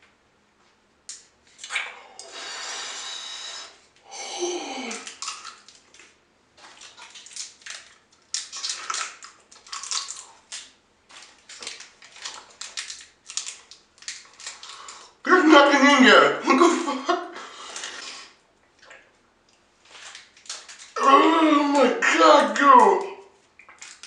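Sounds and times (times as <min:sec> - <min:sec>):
wet mouth smacking and sucking: 0:01.5 - 0:03.8
person hissing through teeth: 0:01.7 - 0:05.1.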